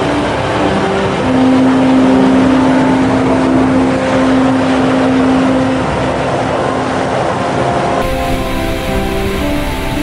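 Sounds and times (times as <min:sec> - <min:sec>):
steady low tone: 0:00.0 - 0:10.0
water jetting from a pipe: 0:04.5 - 0:10.0.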